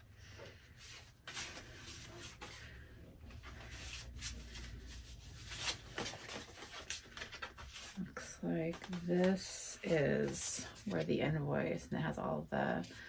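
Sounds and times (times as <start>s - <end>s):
paper rustling and sliding: 0.8s - 9.5s
paper crinkles: 3.3s - 9.5s.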